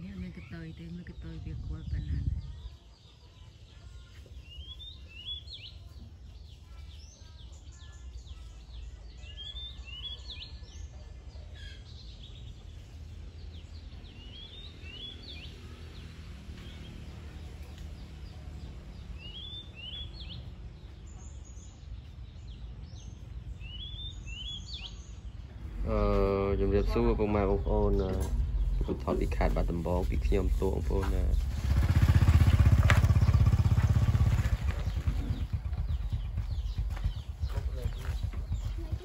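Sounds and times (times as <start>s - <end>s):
steady low rumble: 0.0s - 2.7s, 25.4s - 39.0s
bird singing sweeping phrase: 13.6s - 17.4s, 18.0s - 39.0s.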